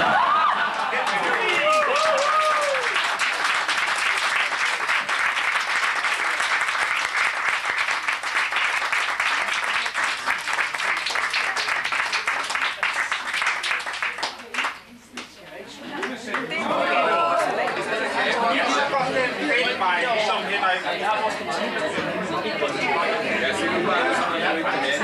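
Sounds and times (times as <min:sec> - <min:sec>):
people applauding: 0:00.0 - 0:18.7.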